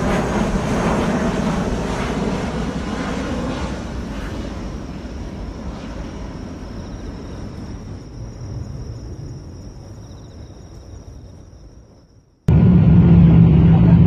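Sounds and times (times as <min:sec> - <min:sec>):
engine and airflow rumble: 0:00.0 - 0:08.9, 0:12.5 - 0:14.0.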